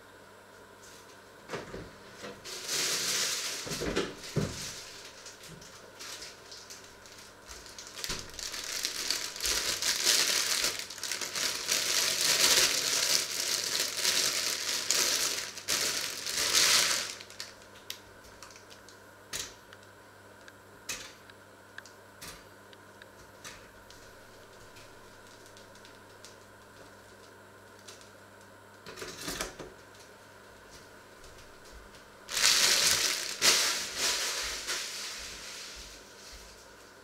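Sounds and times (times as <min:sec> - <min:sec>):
plastic bag crinkling: 0:02.4 - 0:18.9, 0:23.9 - 0:27.3, 0:32.3 - 0:36.9.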